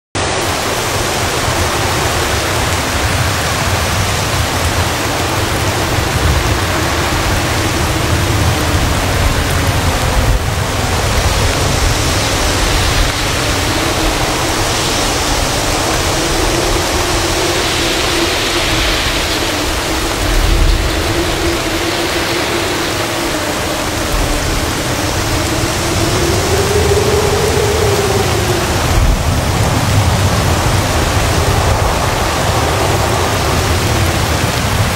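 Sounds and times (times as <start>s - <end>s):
heavy rain pouring: 0.1s - 34.9s
faint low wavering howl: 0.2s - 34.9s
strong wind gusting through palms: 0.2s - 34.9s.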